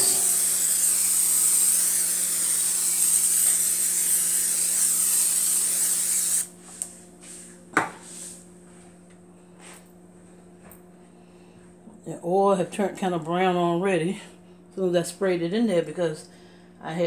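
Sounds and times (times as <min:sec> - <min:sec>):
cooking spray hissing: 0:00.0 - 0:06.6.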